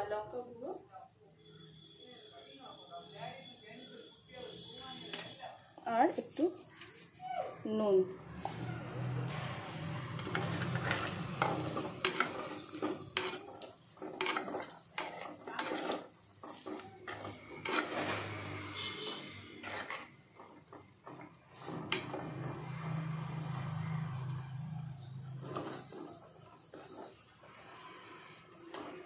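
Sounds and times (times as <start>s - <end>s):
wooden spatula scraping clay pot: 8.2s - 29.0s
potatoes frying in oil: 9.3s - 29.0s.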